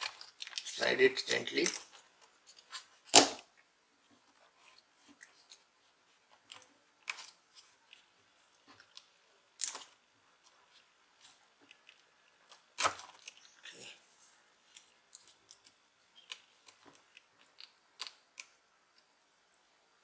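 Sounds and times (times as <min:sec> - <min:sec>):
hands handling plastic parts: 0:00.0 - 0:03.4.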